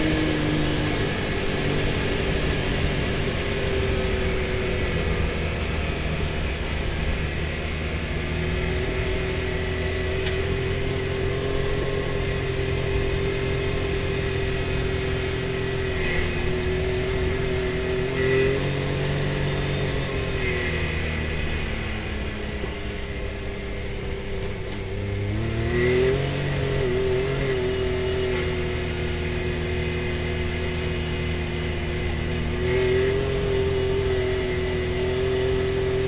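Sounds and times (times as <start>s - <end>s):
engine running at cruising speed: 0.0s - 36.0s.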